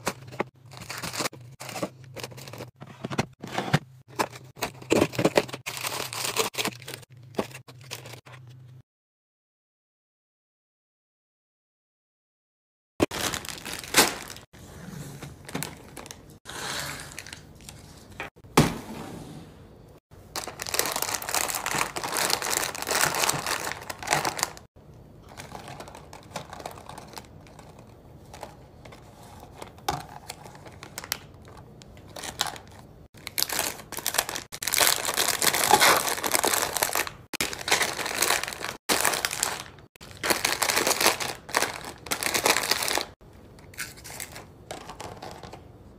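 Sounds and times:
plastic wrappers crinkling: 0.0s - 2.8s, 4.2s - 8.2s, 13.1s - 14.5s, 15.4s - 16.4s, 20.2s - 45.6s.

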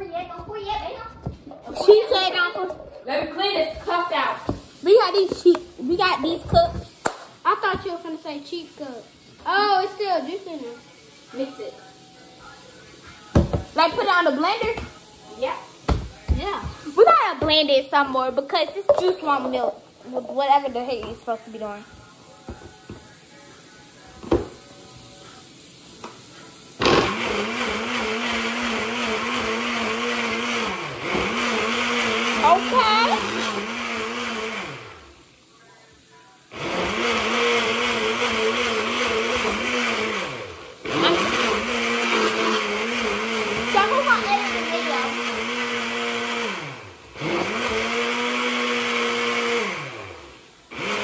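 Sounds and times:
blender motor running: 26.8s - 35.2s, 36.5s - 51.0s.

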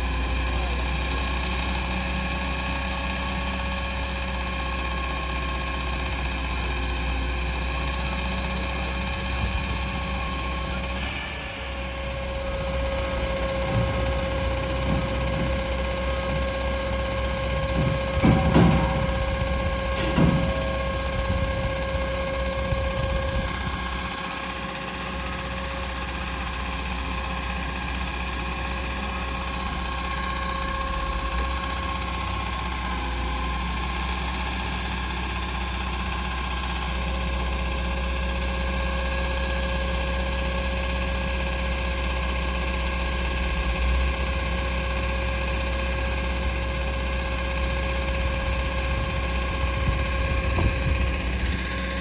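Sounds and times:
truck engine drone: 0.0s - 52.0s
hydraulic whine: 5.0s - 35.0s, 46.5s - 52.0s.

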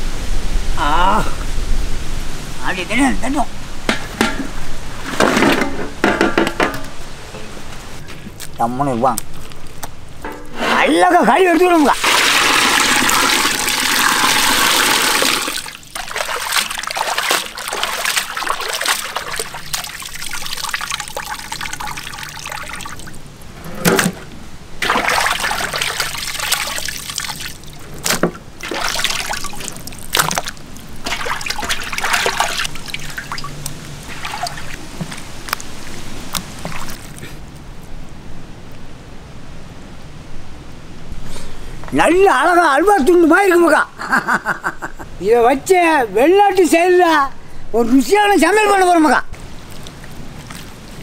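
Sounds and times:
water splashes: 10.2s - 23.5s, 24.8s - 37.4s, 48.5s - 51.0s
water trickling and dripping: 11.5s - 23.5s, 24.8s - 37.3s, 49.4s - 51.0s
water pouring out of a pot: 11.9s - 23.2s, 24.8s - 28.0s, 28.6s - 35.3s.

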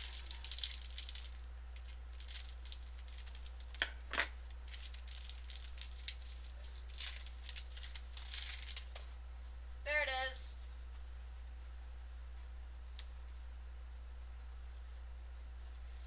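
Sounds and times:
plastic crinkling and rustling: 0.0s - 9.2s.

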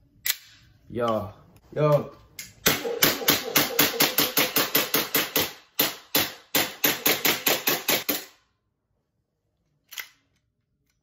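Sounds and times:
airsoft pistol shots: 2.6s - 8.3s.

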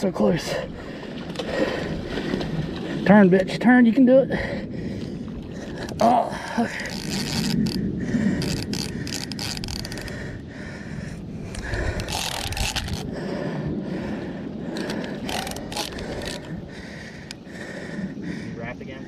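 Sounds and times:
fishing reel scraping and grinding: 6.7s - 10.2s, 11.5s - 13.1s, 14.8s - 16.5s.

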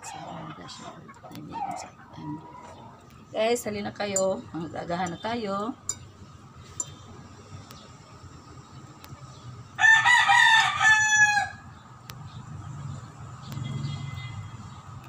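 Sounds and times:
spoon clinking on plate: 5.8s - 6.1s
rooster crowing: 9.8s - 11.7s.

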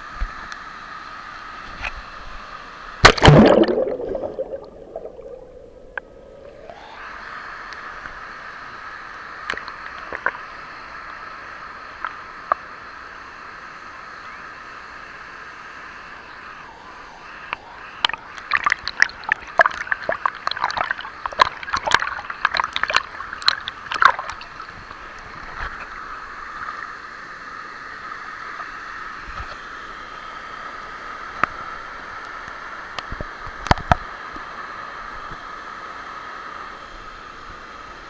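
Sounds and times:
flowing water rushing: 0.3s - 38.0s
river water splashing: 3.0s - 6.0s, 18.1s - 26.7s.

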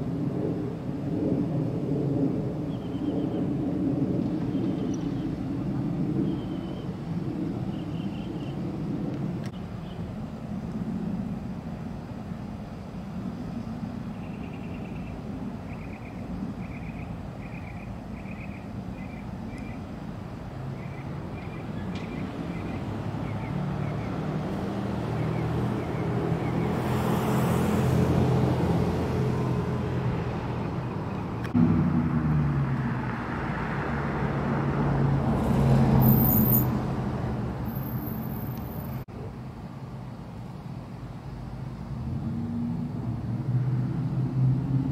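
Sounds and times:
distant traffic rumble: 0.0s - 44.9s
vehicle engine passing: 20.6s - 39.0s, 41.9s - 44.9s.

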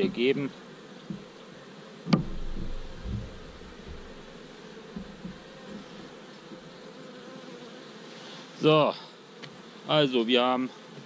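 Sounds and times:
honeybees buzzing: 0.0s - 11.0s
low rumble of handling: 2.2s - 4.3s.

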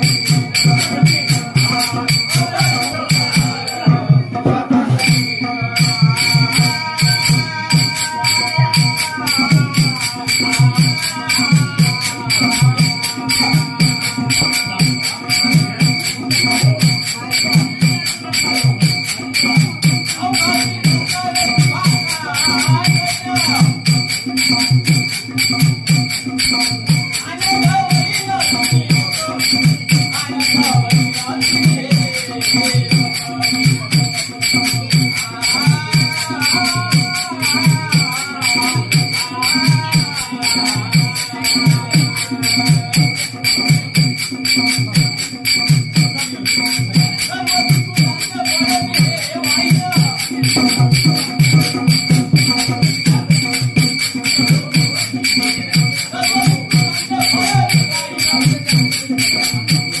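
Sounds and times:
hand cymbals clashing: 0.0s - 60.0s
hand drum: 0.0s - 60.0s
person singing: 27.2s - 43.6s.

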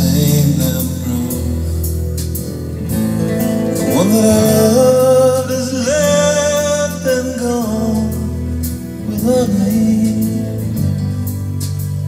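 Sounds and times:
person singing: 0.0s - 2.1s, 3.8s - 11.0s
sustained instrumental backing: 0.0s - 12.0s.

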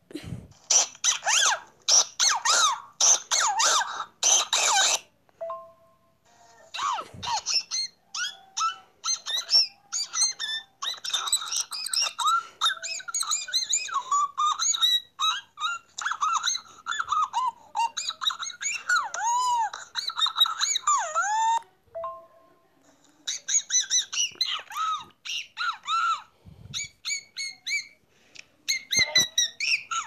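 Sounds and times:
birds calling from phone: 23.2s - 28.0s.

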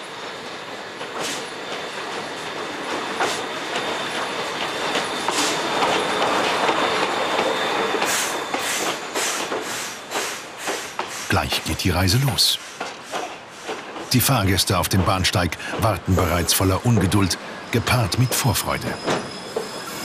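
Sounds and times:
train wheels rumbling on rails: 0.0s - 20.0s
high wheel squeal: 0.6s - 10.4s, 16.2s - 20.0s.

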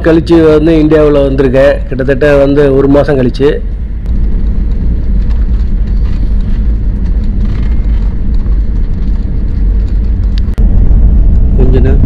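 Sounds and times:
jet cabin engine rumble: 3.6s - 12.0s.

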